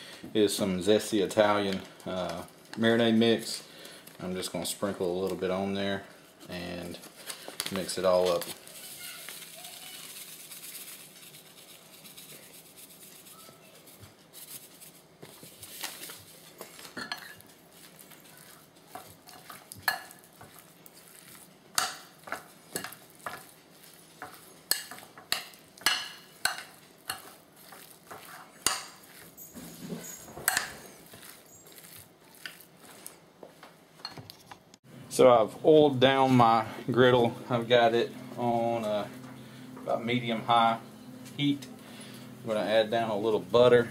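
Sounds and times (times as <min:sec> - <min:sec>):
chicken being mixed in bowl: 0:06.5 - 0:33.3.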